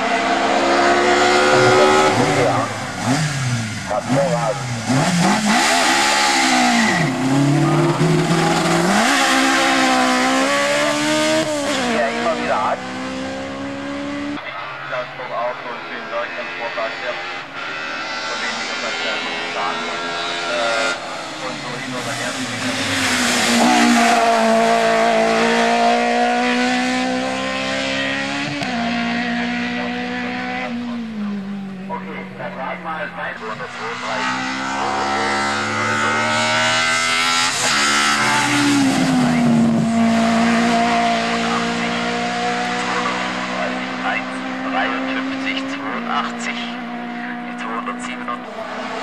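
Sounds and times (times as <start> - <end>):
race car engine revving: 0.0 - 49.0.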